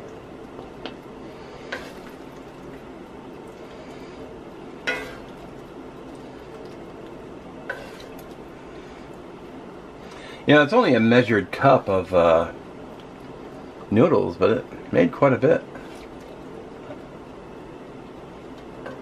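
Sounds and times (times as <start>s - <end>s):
steady background hum: 0.0s - 19.0s
spatula scraping a skillet: 1.4s - 2.2s, 4.8s - 5.4s, 7.7s - 8.3s.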